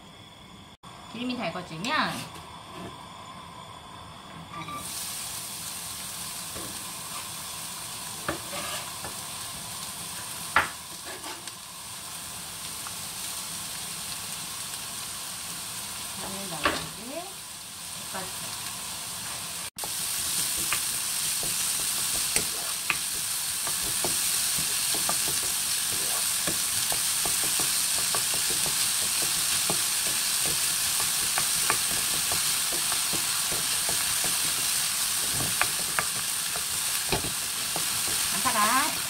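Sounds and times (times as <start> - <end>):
onion sizzling in oil: 0.0 - 39.0
spatula tapping and scraping pan: 20.6 - 38.3.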